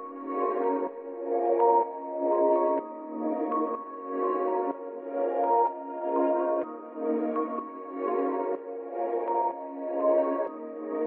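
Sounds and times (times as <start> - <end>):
ambient music with held chords: 0.0 - 11.0.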